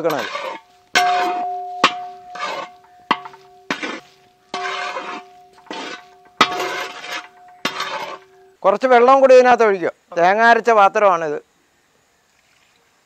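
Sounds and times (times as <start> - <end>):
spatula scraping metal pan: 0.0 - 8.6
metal on metal clink: 0.3 - 8.5
steady ringing tone: 1.0 - 8.6.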